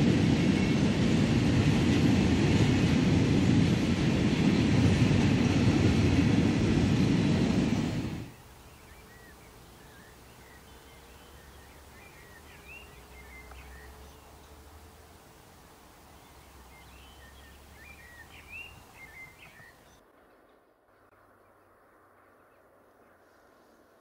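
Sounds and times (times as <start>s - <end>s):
birds chirping and warbling: 8.3s - 14.6s, 16.2s - 23.2s.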